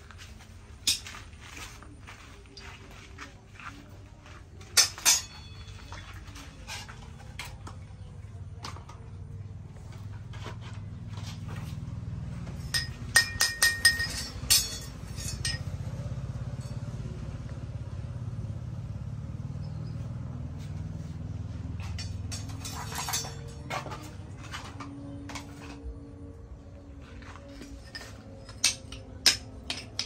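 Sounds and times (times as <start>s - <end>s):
steel clinking on brake disc: 4.7s - 7.0s, 12.5s - 17.1s, 21.7s - 24.1s, 27.5s - 30.0s.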